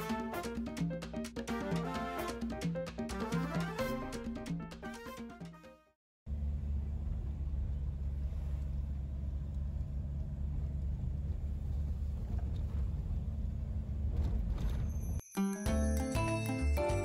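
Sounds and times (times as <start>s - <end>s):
van engine rumble: 6.3s - 15.2s.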